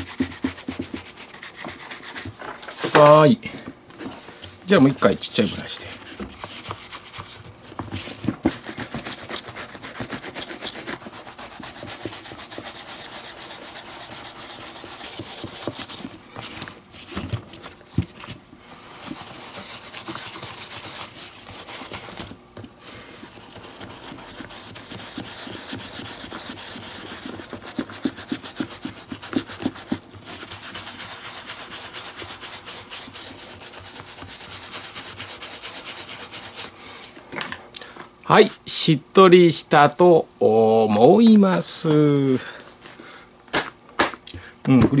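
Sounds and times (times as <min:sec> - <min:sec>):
hand brush scrubbing leather: 0:00.0 - 0:02.4, 0:04.8 - 0:36.8.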